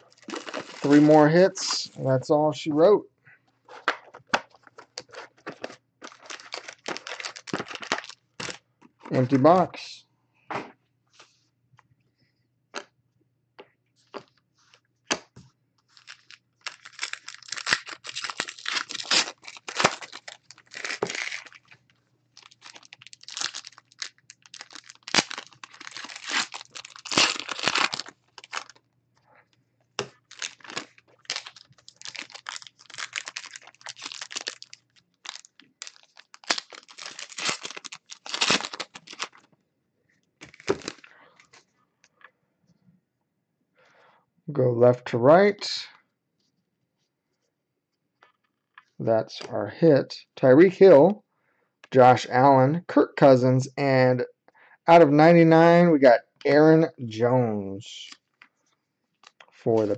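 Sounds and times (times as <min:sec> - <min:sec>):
foil wrappers crinkling and ripping: 0:00.0 - 0:01.9, 0:05.0 - 0:09.3, 0:15.9 - 0:21.8, 0:22.4 - 0:28.8, 0:30.0 - 0:39.5, 0:40.4 - 0:41.5, 0:59.2 - 0:59.9.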